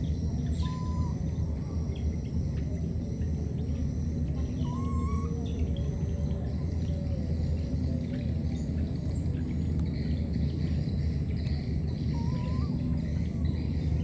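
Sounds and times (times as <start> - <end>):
bird chirps: 0.0 - 14.0
insect sounds: 0.0 - 14.0
steady low rumble: 0.0 - 14.0
whistled note: 4.6 - 5.4.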